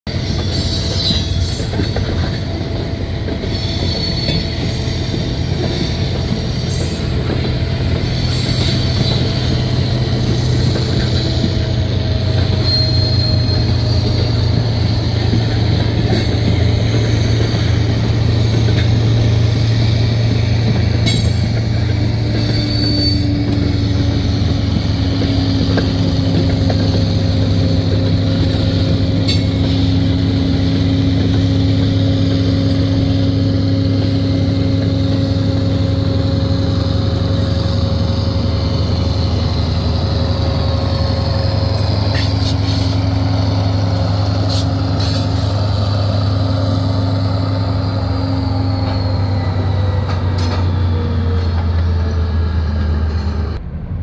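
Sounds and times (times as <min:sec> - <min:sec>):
freight train rolling: 0:00.0 - 0:54.0
train cars clanking: 0:00.1 - 0:54.0
diesel engine drone: 0:04.6 - 0:54.0.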